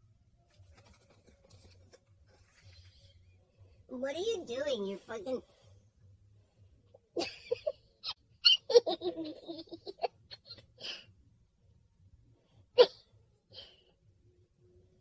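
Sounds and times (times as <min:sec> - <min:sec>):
person laughing: 0:07.2 - 0:10.8.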